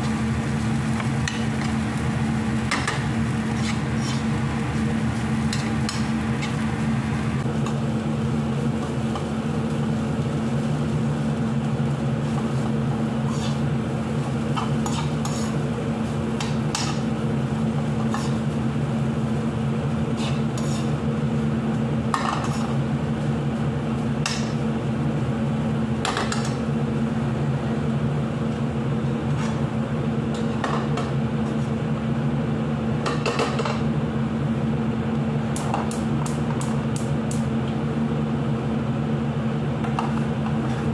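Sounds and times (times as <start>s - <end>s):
steady low hum: 0.0s - 40.9s
metal spoon scraping frying pan: 3.5s - 4.3s, 13.3s - 13.6s, 14.8s - 15.6s, 20.2s - 20.9s.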